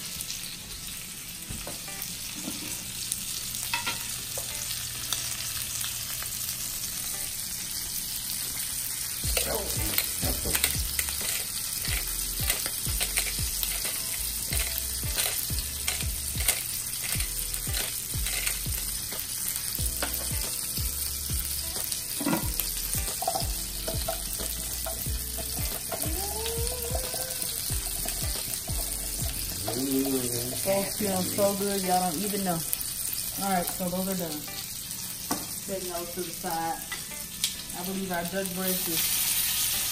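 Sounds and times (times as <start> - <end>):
meat sizzling in a frying pan: 0.0 - 39.9
fat popping and crackling: 9.3 - 19.2.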